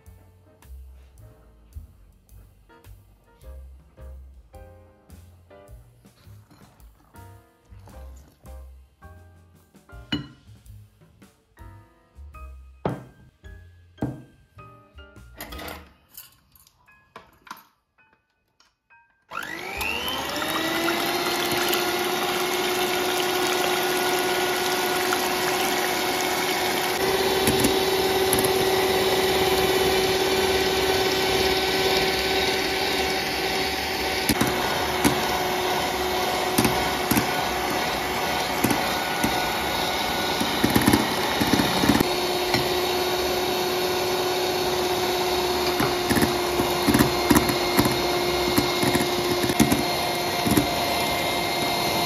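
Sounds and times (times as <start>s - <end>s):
electric hand mixer whining: 19.3s - 52.0s
clicks and taps: 34.3s - 35.3s, 36.5s - 37.8s, 38.6s - 39.5s, 40.3s - 42.7s, 45.7s - 50.8s.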